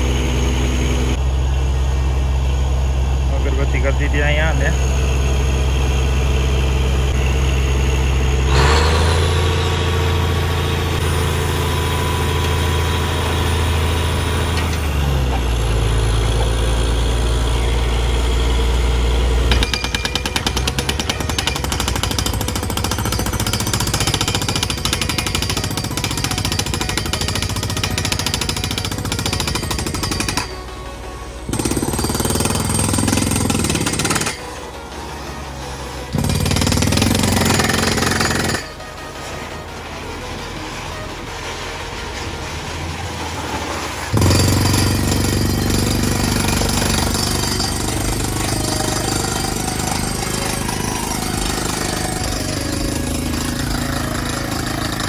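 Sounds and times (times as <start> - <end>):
drilling rig engine and compressor: 0.0 - 55.0.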